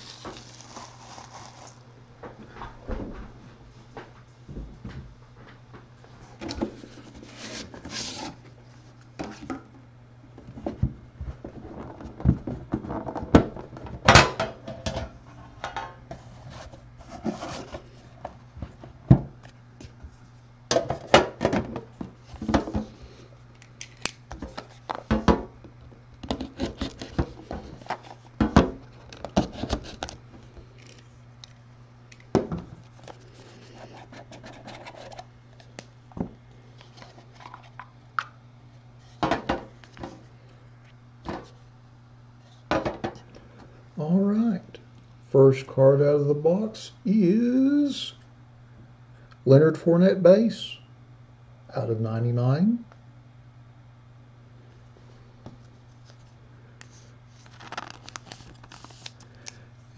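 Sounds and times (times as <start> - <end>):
cardboard boxes and tin scraping: 0.0 - 1.8
low steady hum: 0.0 - 59.9.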